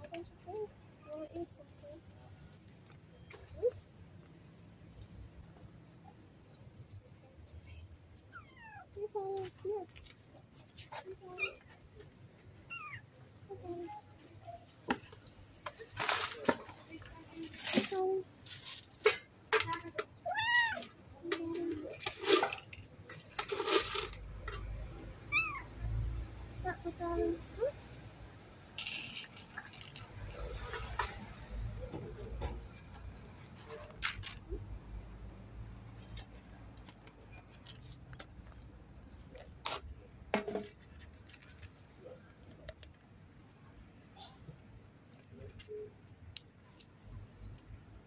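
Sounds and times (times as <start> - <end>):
small things clicking and rattling: 13.7 - 24.9, 28.8 - 34.8, 35.9 - 43.1.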